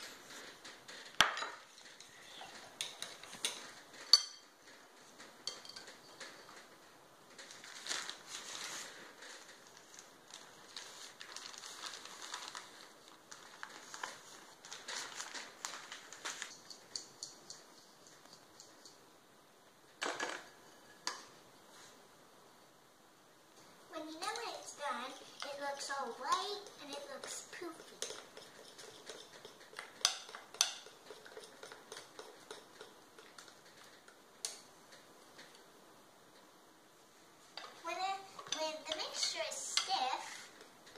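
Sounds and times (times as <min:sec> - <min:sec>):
sugar crackling taps and rustles: 0:00.0 - 0:22.0, 0:23.5 - 0:40.9
spoon scraping in metal sieve: 0:26.2 - 0:33.9.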